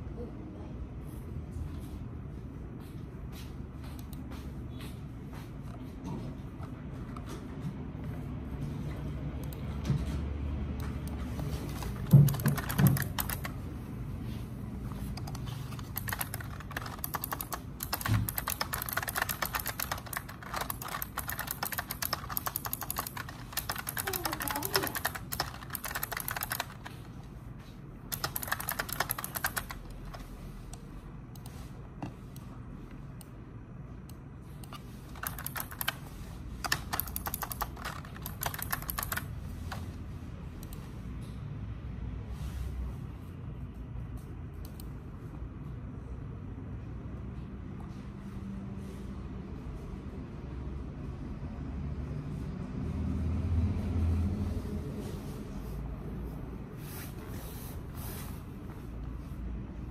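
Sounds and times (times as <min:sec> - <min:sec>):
low room hum: 0:00.0 - 0:59.9
computer keyboard typing: 0:10.7 - 0:13.8, 0:14.9 - 0:27.3, 0:28.0 - 0:30.8, 0:34.1 - 0:40.0.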